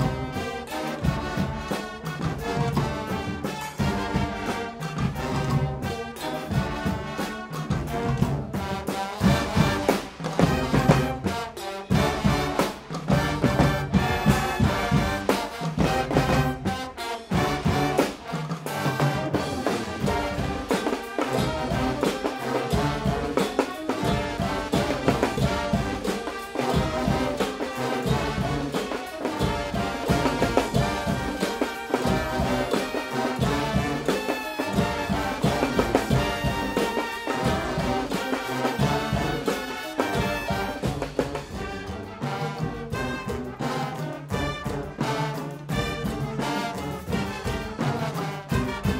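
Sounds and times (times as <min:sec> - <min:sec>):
brass band playing: 0:00.0 - 0:48.9.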